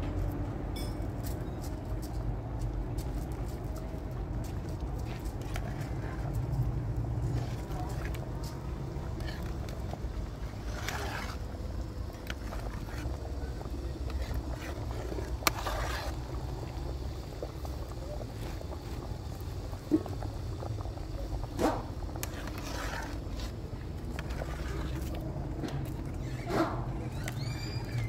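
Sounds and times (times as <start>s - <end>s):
fire low rumble: 0.0s - 28.0s
stew pot being stirred: 3.0s - 28.0s.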